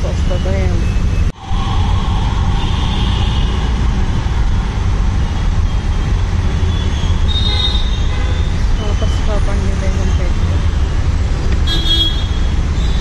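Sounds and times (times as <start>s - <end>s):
low engine rumble: 0.0s - 7.5s
road noise: 0.0s - 13.0s.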